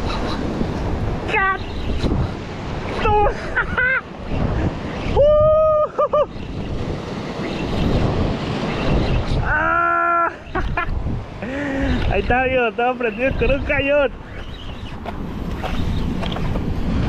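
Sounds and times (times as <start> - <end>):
wind buffeting microphone: 0.0 - 9.8, 10.4 - 17.0
waves breaking on rocks: 5.9 - 9.6.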